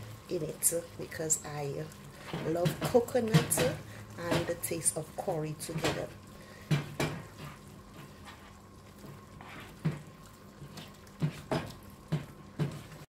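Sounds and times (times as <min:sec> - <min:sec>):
spatula knocking against pan: 0:02.4 - 0:04.7, 0:06.6 - 0:07.4, 0:11.2 - 0:12.8
wet sloshing stir: 0:05.4 - 0:13.0.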